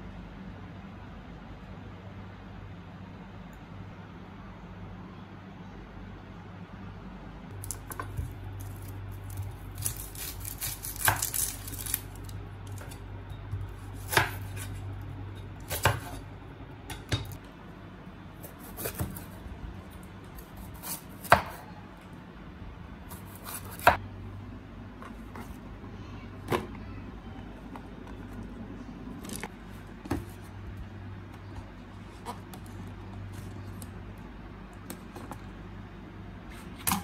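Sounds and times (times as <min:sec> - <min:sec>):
low steady hum: 0:00.0 - 0:37.0.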